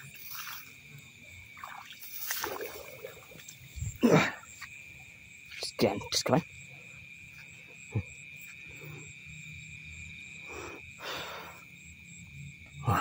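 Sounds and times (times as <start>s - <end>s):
night insects droning: 0.0s - 13.0s
rustling through grass: 2.0s - 3.5s.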